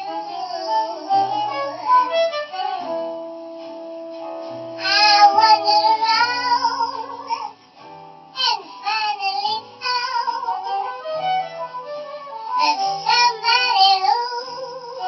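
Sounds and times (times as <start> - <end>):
woman singing jazz: 0.0 - 3.2, 4.8 - 7.6, 8.4 - 15.0.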